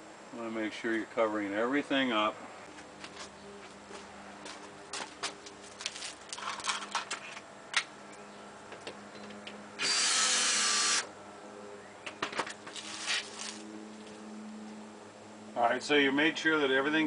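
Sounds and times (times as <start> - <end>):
cordless drill driving screw: 9.8 - 11.1.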